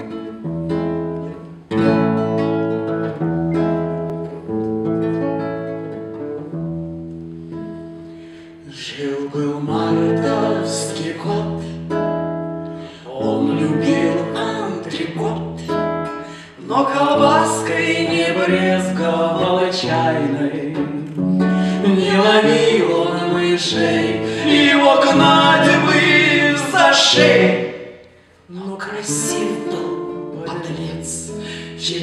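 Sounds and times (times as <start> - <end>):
acoustic guitar chords: 0.0 - 32.0
woman and man singing: 8.6 - 11.9, 12.9 - 32.0.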